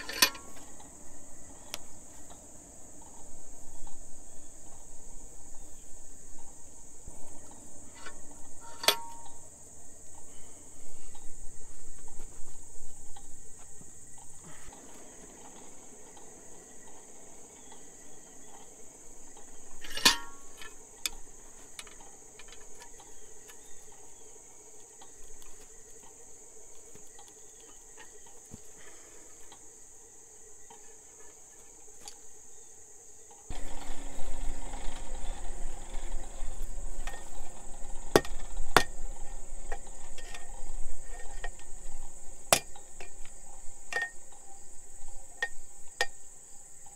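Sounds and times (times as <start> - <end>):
metallic clink: 0.0 - 0.6, 7.9 - 9.4, 19.8 - 21.2, 43.9 - 44.4
insects chirping: 0.0 - 46.9
metal bar knocking on anvil: 8.6 - 9.4.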